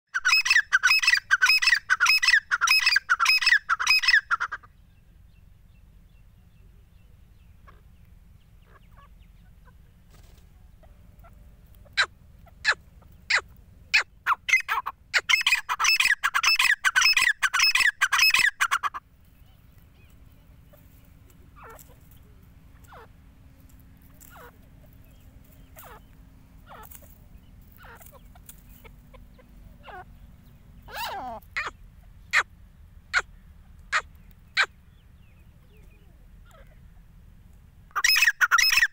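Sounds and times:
bird calling in rapid runs: 0.2 - 4.7, 7.6 - 19.0, 30.8 - 32.5, 37.9 - 38.9.

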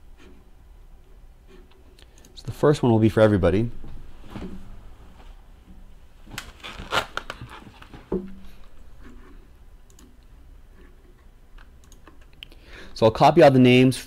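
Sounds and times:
keyboard and mouse clicks: 9.8 - 10.3, 11.6 - 12.6.

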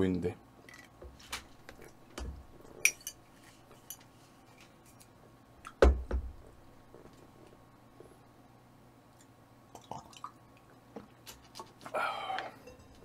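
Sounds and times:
tableware clinking on a table: 12.6 - 13.0.

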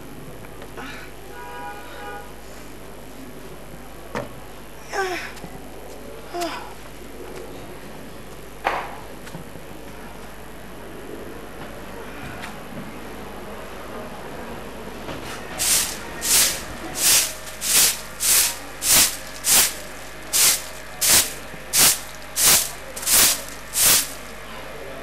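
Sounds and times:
broom sweeping paving stones: 15.2 - 24.4.

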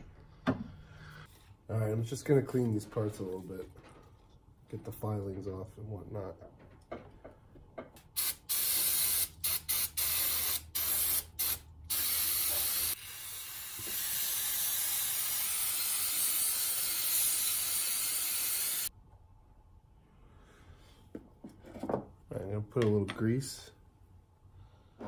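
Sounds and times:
spray can hissing: 8.2 - 18.9.

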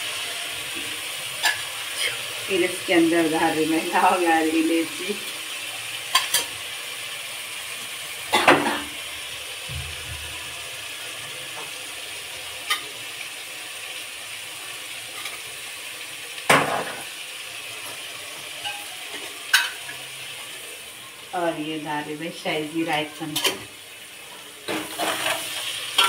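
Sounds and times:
onions sizzling in oil: 0.0 - 26.0.

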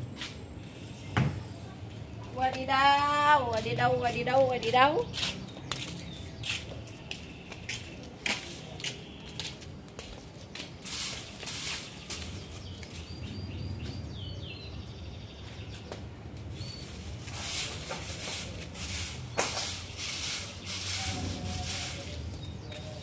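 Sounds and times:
broom swishing on cement floor: 4.1 - 13.3, 16.5 - 23.0
bird chirping: 11.3 - 17.3.

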